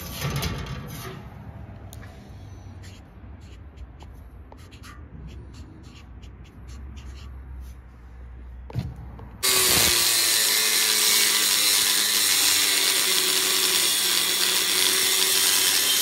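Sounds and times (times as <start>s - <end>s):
angle grinder cutting steel: 9.4s - 16.0s.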